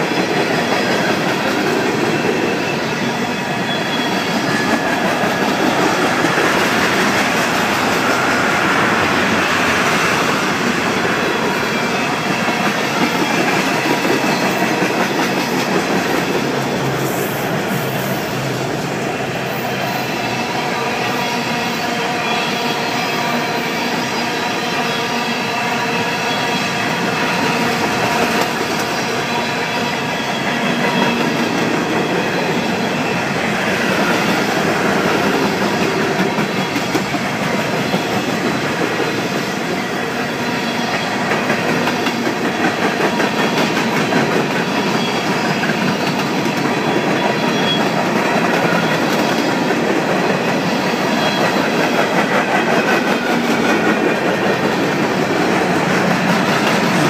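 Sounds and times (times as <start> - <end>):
clickety-clack of rail joints: 0.0 - 18.8, 26.5 - 57.0
freight train wheels rumbling: 0.0 - 57.0.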